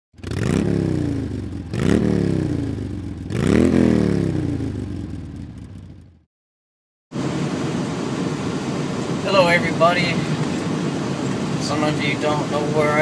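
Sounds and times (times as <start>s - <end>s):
engine revving: 0.1s - 6.3s.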